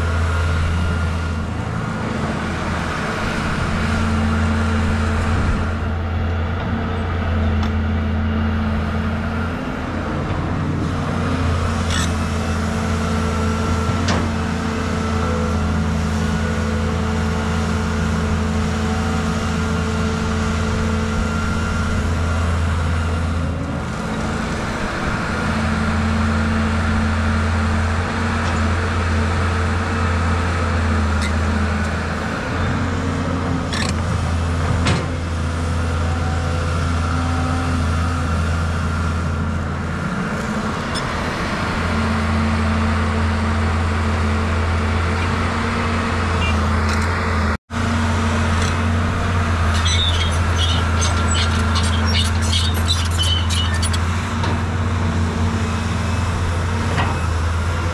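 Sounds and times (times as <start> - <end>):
excavator diesel engine drone: 0.0 - 57.9.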